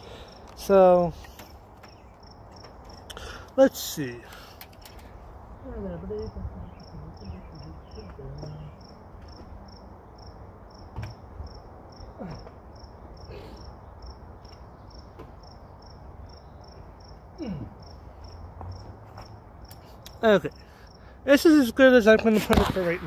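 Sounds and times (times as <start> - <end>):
creaks of handling: 0.0 - 5.4
cricket chirping: 0.0 - 22.1.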